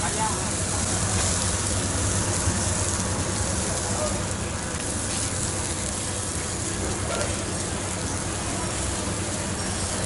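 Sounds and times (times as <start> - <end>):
food sizzling on grill: 0.0 - 10.0.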